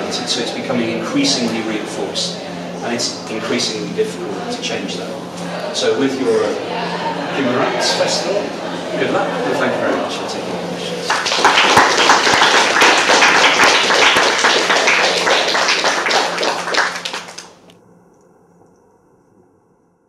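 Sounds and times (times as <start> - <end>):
audience applauding: 7.4 - 17.7.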